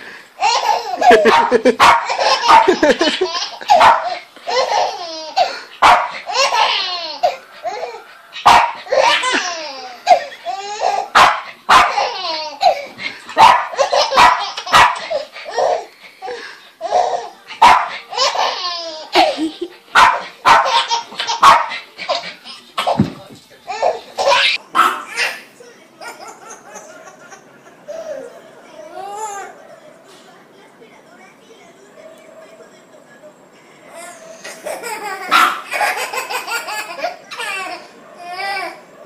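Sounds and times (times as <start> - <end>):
baby laughing: 0.4 - 17.3, 18.1 - 23.1, 23.7 - 28.4, 34.0 - 38.8
dog barking: 1.1 - 2.8, 3.7 - 4.2, 5.8 - 6.2, 8.4 - 8.9, 11.2 - 12.0, 13.4 - 15.1, 17.6 - 18.0, 20.0 - 21.8, 24.7 - 25.1, 35.3 - 35.7.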